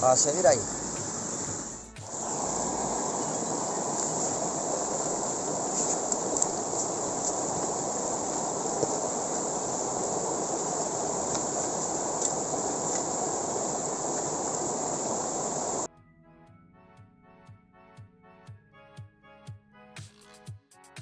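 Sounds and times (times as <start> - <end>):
river water rushing: 0.0 - 15.9.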